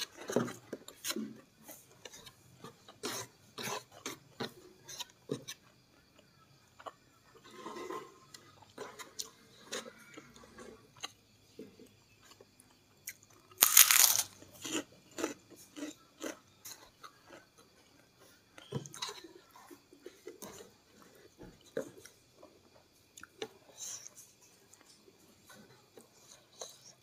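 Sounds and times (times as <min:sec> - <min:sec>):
crunchy chewing: 0:00.0 - 0:27.0
cracker crunching: 0:13.1 - 0:16.4.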